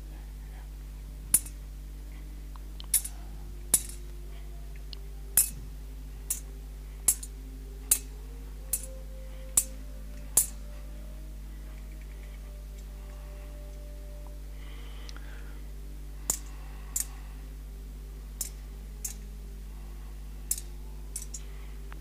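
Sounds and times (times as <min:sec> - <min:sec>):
censer chains clinking: 0:02.8 - 0:04.1, 0:20.5 - 0:21.5.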